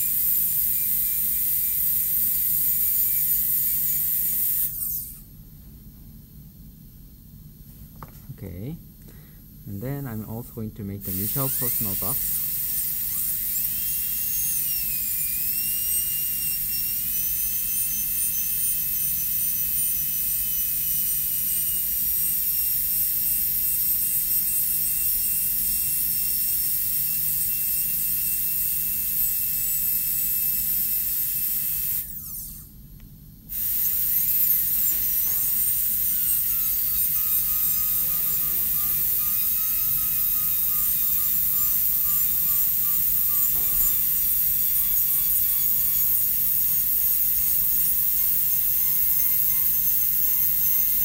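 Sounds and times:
dental drill whining: 0.0s - 5.3s, 9.7s - 32.7s, 33.5s - 51.0s.

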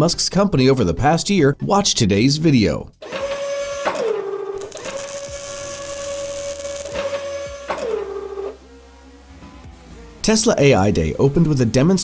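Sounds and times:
synthesized electronic whirring hum: 4.6s - 10.2s.

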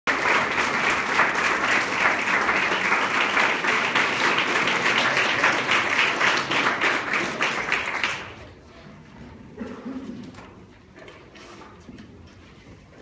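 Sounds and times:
audience applauding: 0.1s - 8.5s.

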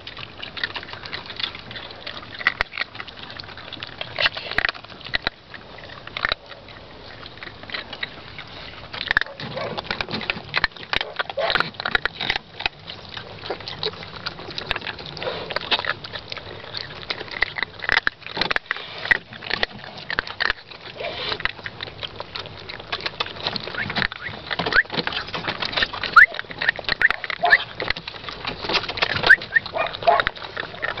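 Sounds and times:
puppies chewing food: 0.0s - 31.0s
puppies squeaking: 22.7s - 28.4s, 29.0s - 31.0s.

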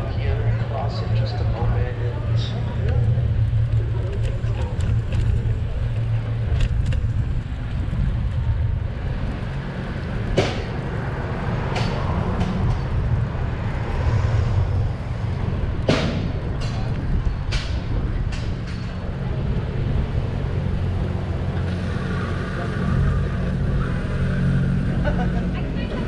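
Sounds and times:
car traffic: 0.0s - 26.0s
wind and road noise: 0.0s - 26.0s.

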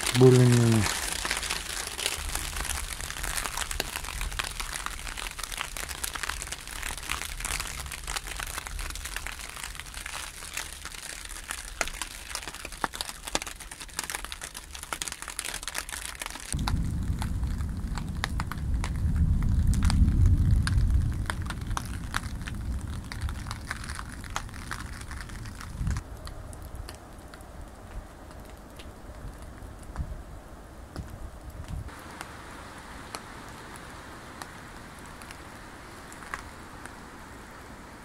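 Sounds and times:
rain pattering on plastic sheet: 0.0s - 38.0s
wind rumble on microphone: 16.6s - 32.0s.

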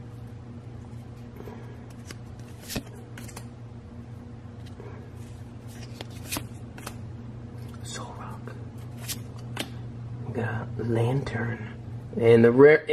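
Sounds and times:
steady low hum: 0.0s - 12.9s
trading cards flicked by hand: 1.9s - 3.5s, 5.7s - 7.0s.

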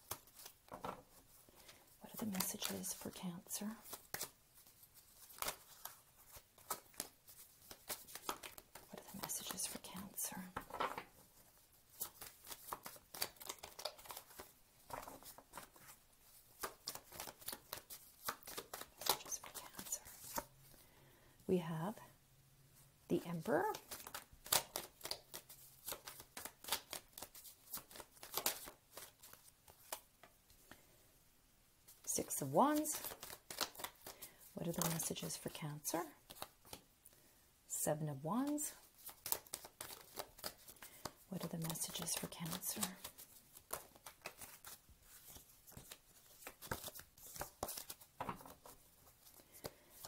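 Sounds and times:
cards being shuffled: 0.0s - 20.5s, 23.3s - 30.3s, 31.9s - 36.8s, 38.4s - 50.0s.

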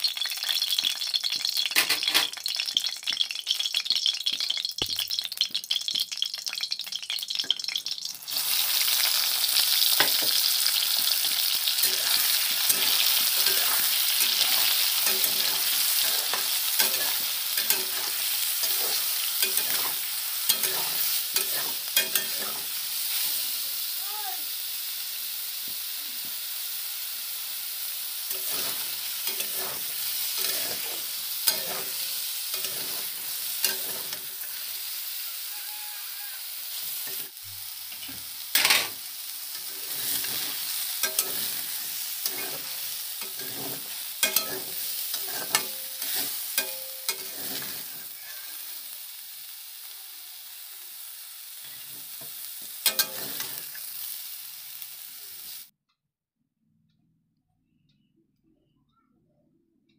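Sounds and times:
food frying in oil: 0.0s - 55.7s
spatula scraping metal pan: 11.7s - 23.3s, 28.3s - 34.6s, 39.6s - 48.6s.

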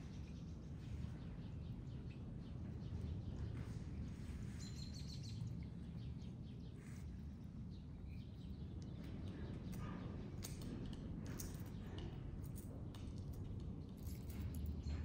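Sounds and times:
bird chirping: 4.5s - 7.0s.

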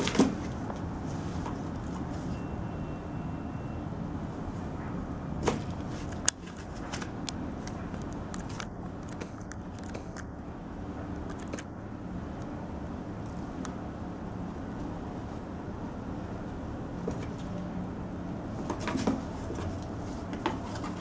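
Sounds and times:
cat scratching cardboard box: 18.6s - 21.0s.

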